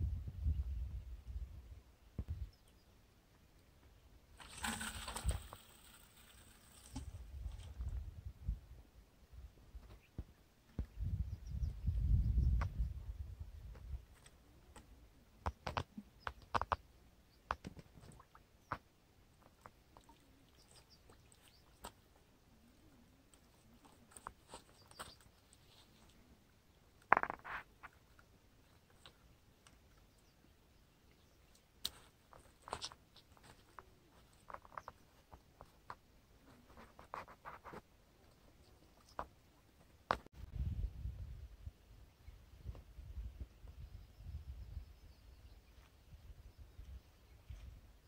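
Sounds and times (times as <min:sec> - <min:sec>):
stones shifting: 0:04.4 - 0:07.8, 0:27.1 - 0:28.0
stones shifting under footsteps: 0:04.4 - 0:07.9, 0:23.4 - 0:26.2, 0:27.0 - 0:29.2, 0:31.8 - 0:40.3.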